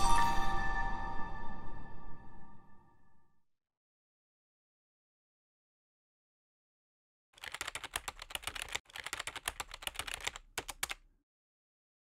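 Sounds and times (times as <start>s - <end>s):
rapid clicks: 7.4s - 11.0s.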